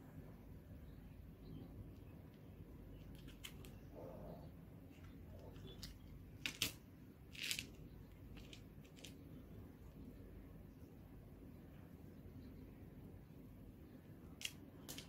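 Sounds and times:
beads clicking: 5.3s - 9.2s, 14.4s - 15.0s.

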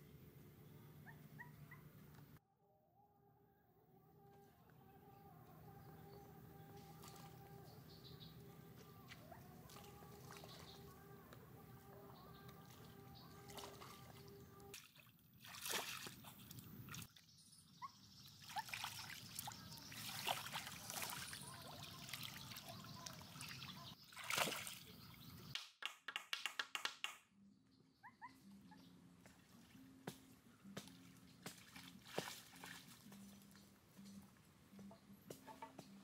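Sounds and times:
outdoor calls: 0.6s - 2.4s, 3.9s - 14.8s
water sloshing and splashing: 8.8s - 11.4s, 12.4s - 17.2s, 18.4s - 25.1s, 29.2s - 33.5s.

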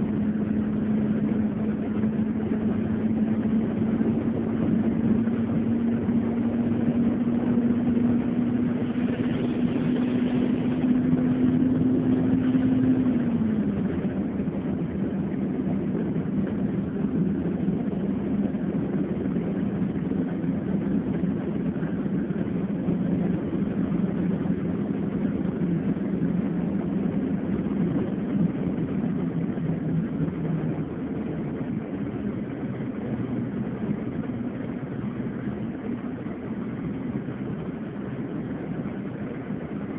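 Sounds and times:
road noise inside car: 0.0s - 39.9s
vehicle engine hum: 0.0s - 39.9s.

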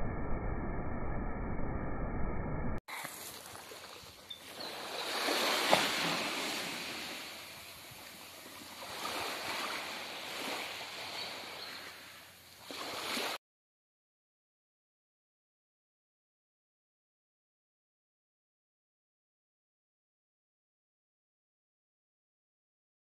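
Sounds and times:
waves washing on pebbles: 2.9s - 13.4s.

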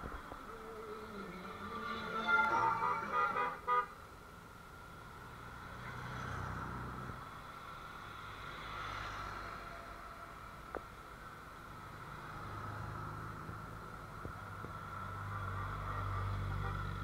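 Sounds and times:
horn tooting: 1.2s - 4.0s, 16.5s - 17.0s
motorcycles riding past: 5.2s - 10.6s.

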